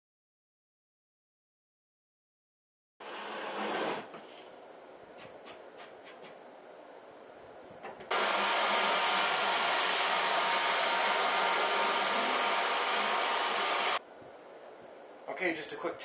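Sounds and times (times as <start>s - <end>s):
shop vacuum running with whine: 8.1s - 14.0s.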